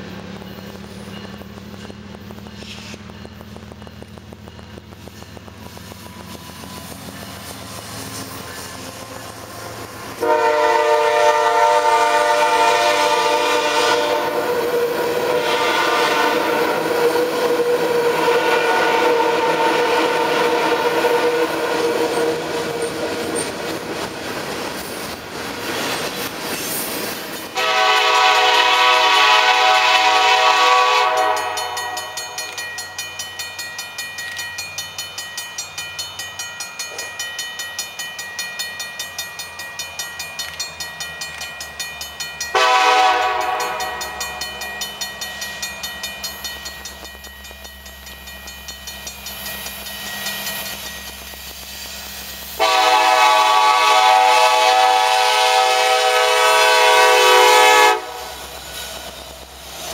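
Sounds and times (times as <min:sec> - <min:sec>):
freight train cars rolling: 0:00.0 - 0:59.9
locomotive air horn blasts: 0:10.2 - 0:22.8, 0:27.5 - 0:32.2, 0:42.5 - 0:44.2, 0:52.6 - 0:58.3
bell ringing: 0:31.3 - 0:51.6.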